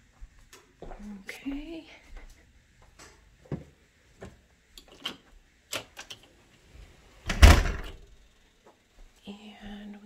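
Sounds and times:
door shutting with a thud: 7.3s - 8.1s.

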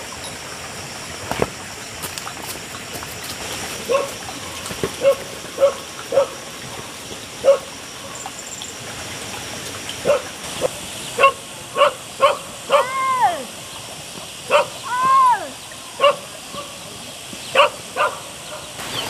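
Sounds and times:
dog yapping: 11.2s - 13.4s, 14.5s - 15.4s.

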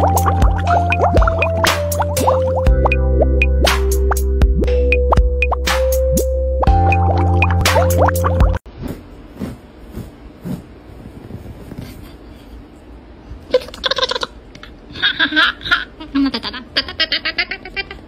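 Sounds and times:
music: 0.0s - 8.6s
high-pitched laughter: 13.5s - 18.0s.

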